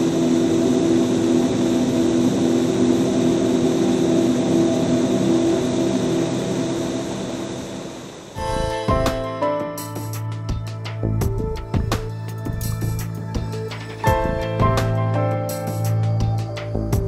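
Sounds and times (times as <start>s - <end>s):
low drone of held tones: 0.0s - 11.4s.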